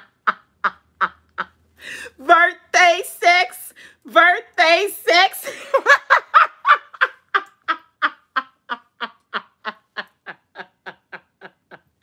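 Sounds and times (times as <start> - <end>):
woman laughing hard: 5.4 - 12.0.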